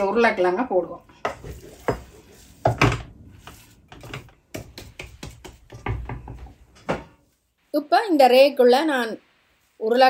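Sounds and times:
wooden spatula knocking in a pan: 1.2s - 3.1s, 3.9s - 7.2s.

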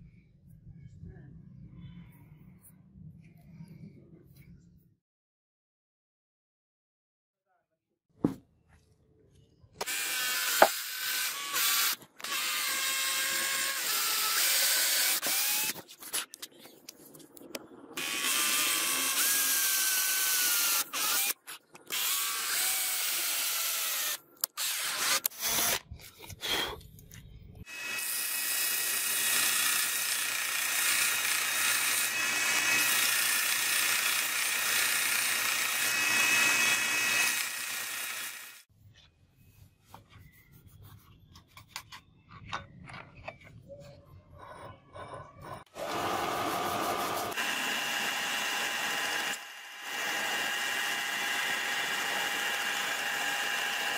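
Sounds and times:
cordless drill boring wood: 9.8s - 15.8s, 18.0s - 25.8s, 27.7s - 38.7s, 45.7s - 53.9s
belt sander running: 45.8s - 53.9s.

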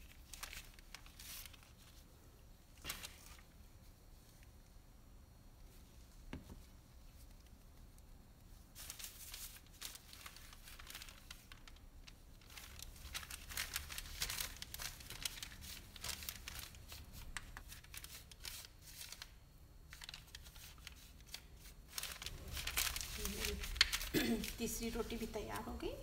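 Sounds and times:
parchment paper crinkling: 0.0s - 2.1s, 2.7s - 4.6s, 5.8s - 26.0s.

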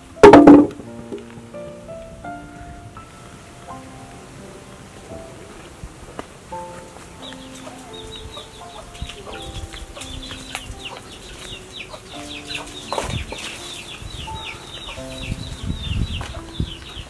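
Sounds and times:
soft keyboard music: 0.0s - 17.0s
thump: 0.2s - 0.8s
chickens peeping and clucking: 6.6s - 17.0s.

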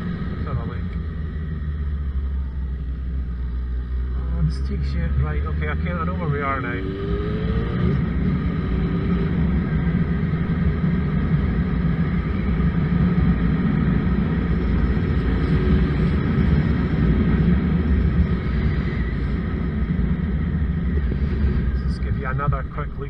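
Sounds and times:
motorcycle engine cruising: 0.0s - 23.0s
wind rush on microphone: 6.8s - 22.6s.

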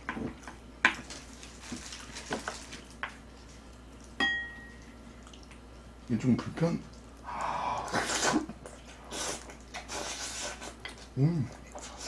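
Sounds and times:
spoon clinking on bowl: 4.2s - 4.8s.

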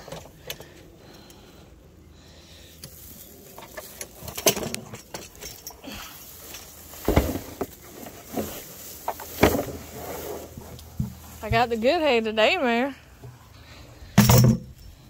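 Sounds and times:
dry hay rustling: 2.6s - 13.8s.

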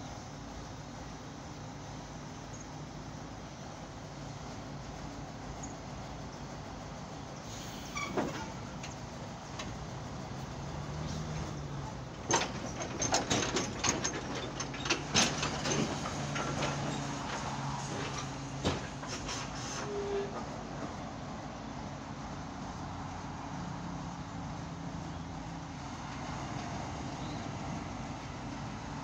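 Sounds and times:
crane diesel engine running: 0.0s - 29.0s
metallic clicks and knocks: 12.1s - 17.4s.

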